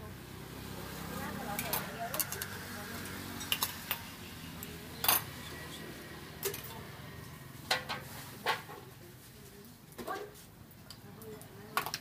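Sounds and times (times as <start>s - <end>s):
ladles clinking against pots and bowls: 3.4s - 4.1s, 5.0s - 5.6s.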